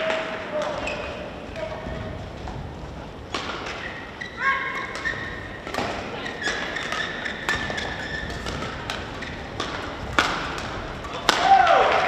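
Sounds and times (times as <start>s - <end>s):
shoes squeaking on court: 0.5s - 11.3s
badminton racket hitting shuttlecock: 4.6s - 11.8s.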